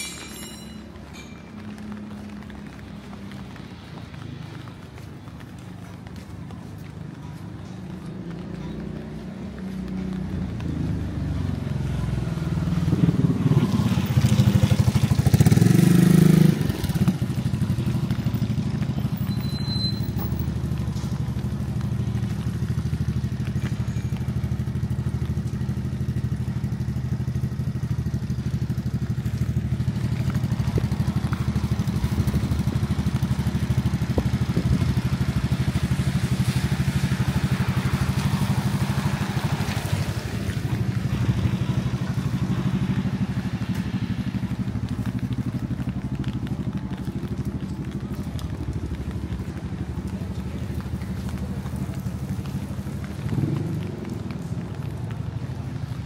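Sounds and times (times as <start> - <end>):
vehicle engine running: 20.0 - 56.0.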